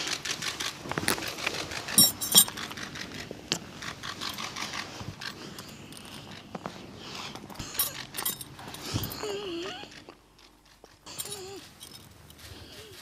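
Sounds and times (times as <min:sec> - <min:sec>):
people rustling in a room: 0:04.4 - 0:13.0.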